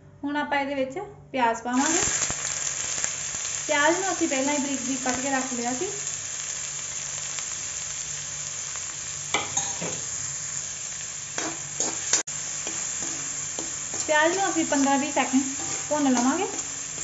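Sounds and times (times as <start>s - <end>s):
onion sizzling in hot oil: 1.8s - 17.0s
metal spoon scraping a pan: 9.3s - 10.0s, 11.4s - 17.0s.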